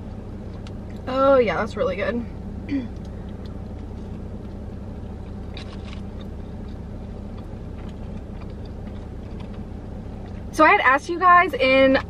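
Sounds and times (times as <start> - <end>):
steady low hum: 0.0 - 12.0
close-up chewing with crunches: 2.9 - 10.5.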